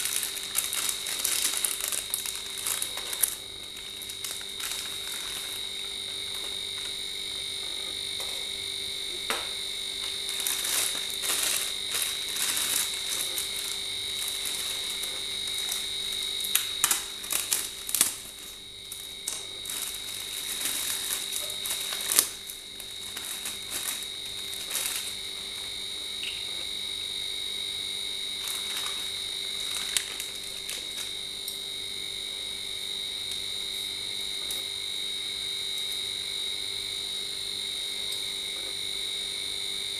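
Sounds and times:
plastic packaging crinkling: 0.0 - 8.4, 9.2 - 26.7, 28.3 - 31.3.

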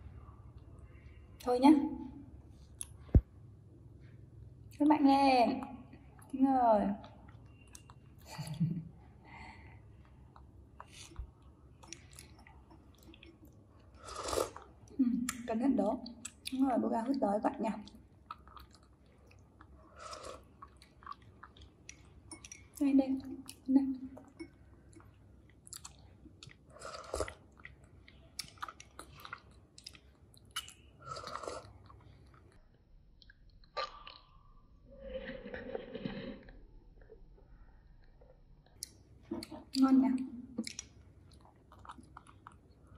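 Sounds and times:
loud slurp: 13.9 - 14.6, 31.0 - 31.8, 35.1 - 36.6
drinking through a straw: 13.9 - 14.7, 19.9 - 20.5, 26.7 - 27.4, 31.0 - 31.8.

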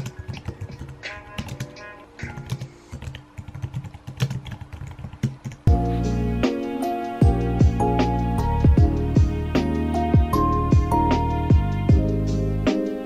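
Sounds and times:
soft background music: 0.0 - 13.0
music with deep bass: 5.7 - 13.0.

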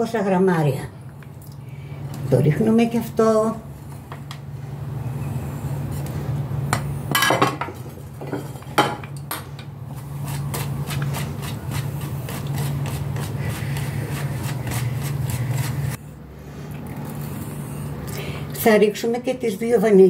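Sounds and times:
wire whisk beating batter in bowl: 10.3 - 16.0.

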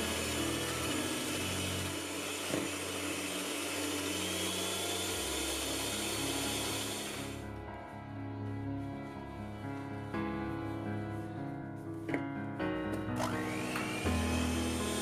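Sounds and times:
electric hand mixer whipping cream: 0.0 - 7.4, 13.2 - 15.0.

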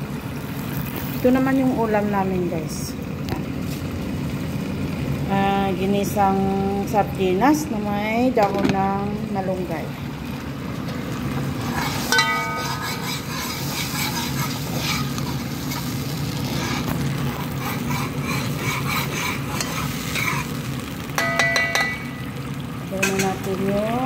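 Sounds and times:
sauce sizzling and bubbling: 0.0 - 24.0
metal spoon scraping pan: 11.6 - 20.6.

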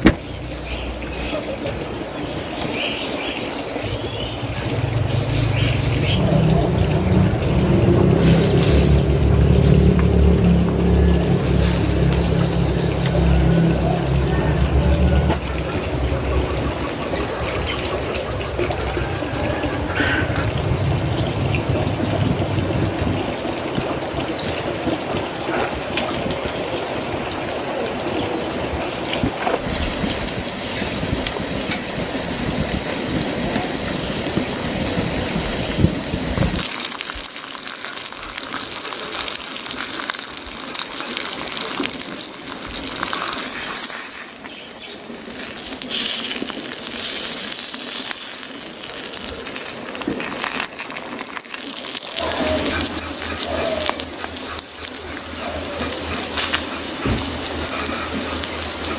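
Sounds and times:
meat sizzling in oil: 0.0 - 58.9
low rumble: 4.5 - 24.3.

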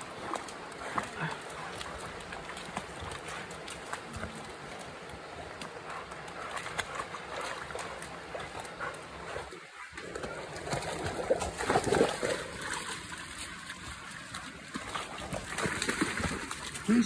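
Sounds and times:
dogs splashing through mud and water: 0.0 - 17.0.

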